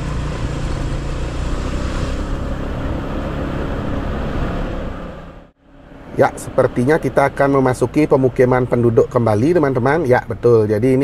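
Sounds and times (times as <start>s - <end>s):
motorcycle engine running: 0.0s - 5.9s.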